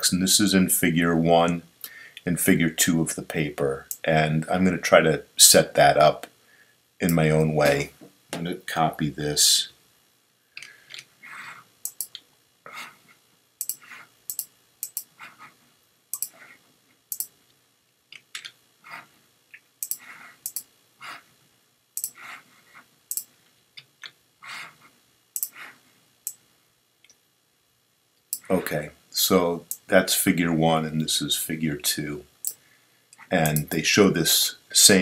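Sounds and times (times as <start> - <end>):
mouse and keyboard clicks: 11.8 - 12.3, 13.6 - 15.1, 16.2 - 16.4, 17.1 - 17.4, 19.5 - 20.7, 22.0 - 22.3, 23.1 - 24.2, 25.4 - 25.7.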